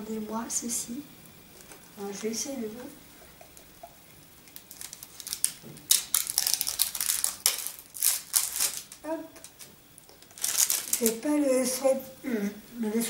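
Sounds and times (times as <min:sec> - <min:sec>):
plastic packaging crackling: 0:03.5 - 0:11.8.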